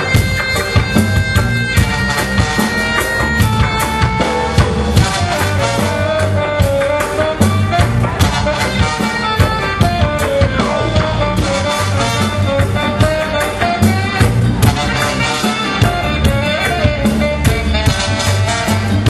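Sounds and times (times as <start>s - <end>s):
live reggae band: 0.0s - 19.0s
saxophone melody: 0.0s - 19.0s.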